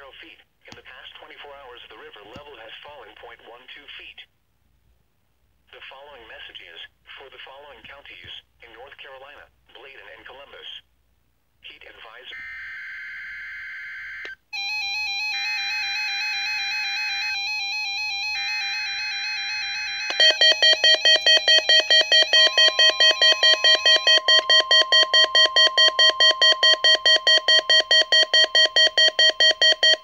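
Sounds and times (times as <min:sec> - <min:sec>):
faint steady warning tone: 0:12.3 - 0:30.0
loud beeping alarm: 0:19.7 - 0:30.0.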